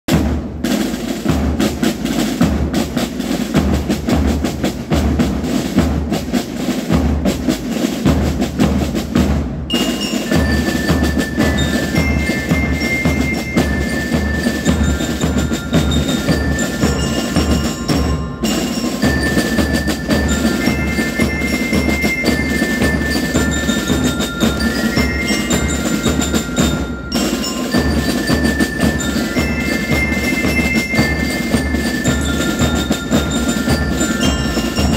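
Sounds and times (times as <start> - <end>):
marching band drums: 0.1 - 34.9
bell lyres playing melody: 9.7 - 34.9.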